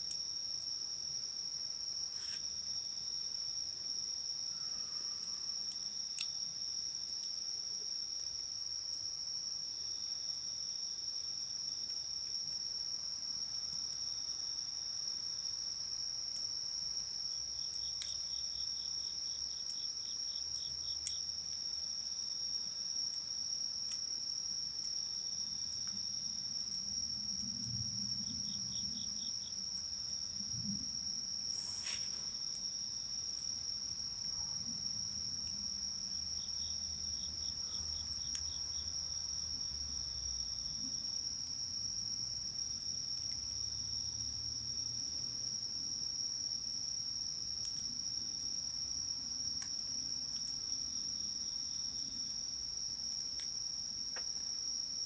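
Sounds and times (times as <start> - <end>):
rapid pulsed insect chirps: 17.2 - 44.2.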